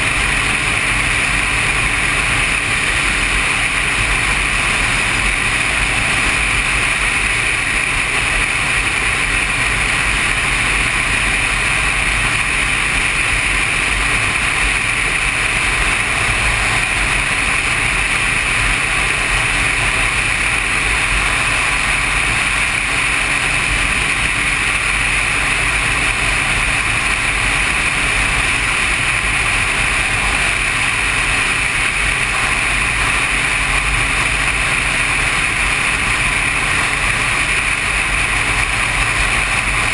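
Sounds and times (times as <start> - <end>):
motorcycle cruising: 0.0 - 39.9
wind noise: 0.0 - 39.9.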